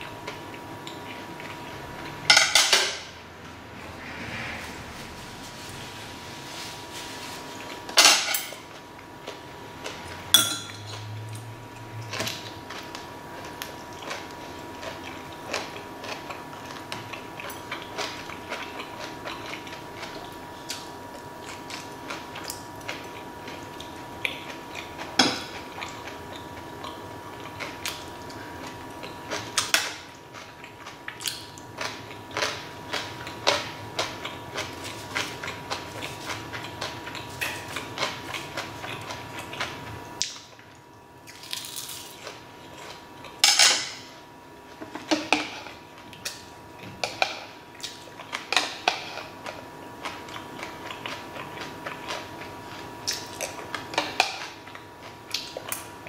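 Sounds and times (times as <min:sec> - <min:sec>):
chewing: 0:00.2 - 0:02.2, 0:10.9 - 0:43.4, 0:44.9 - 0:55.9
utensils clinking on metal bowls: 0:08.0 - 0:08.6, 0:10.3 - 0:11.1.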